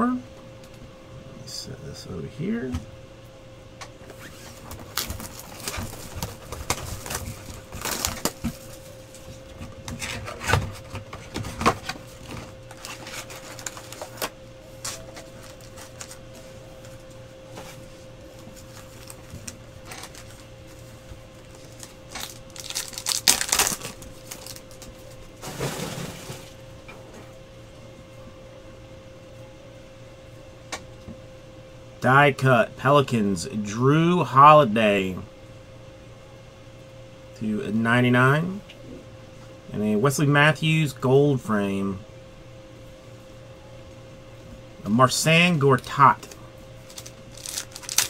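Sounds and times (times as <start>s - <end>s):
faint steady hum: 0.0s - 48.0s
paper and foil crinkling: 4.2s - 17.0s, 17.7s - 26.6s, 45.6s - 48.0s
cards being shuffled and flicked: 12.2s - 16.2s, 45.8s - 48.0s.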